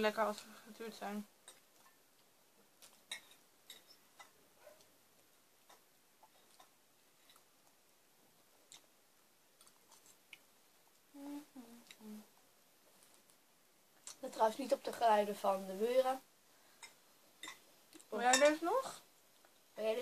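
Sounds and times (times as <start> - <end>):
person humming: 11.1 - 12.3.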